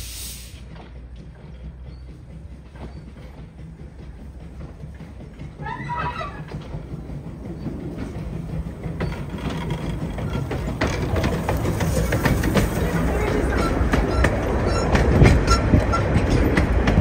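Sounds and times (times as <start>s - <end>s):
train rumbling past: 0.0s - 17.0s
wheels clicking on track: 0.2s - 17.0s.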